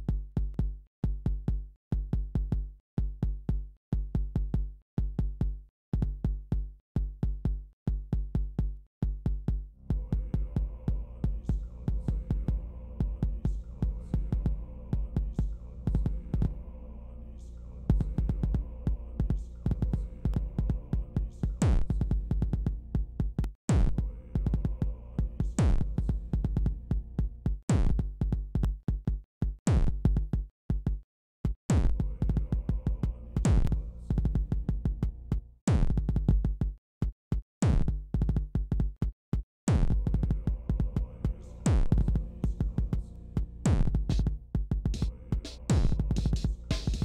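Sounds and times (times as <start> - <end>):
deep sampled bass: 9.8 - 28.5, 31.7 - 36.4, 39.7 - 47.0
electronic drum machine beat: 19.2 - 31.0, 31.7 - 39.1, 39.7 - 47.0.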